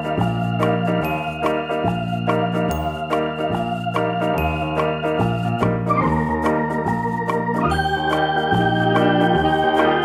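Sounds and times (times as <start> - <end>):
organ-like keyboard chords: 0.0 - 10.0.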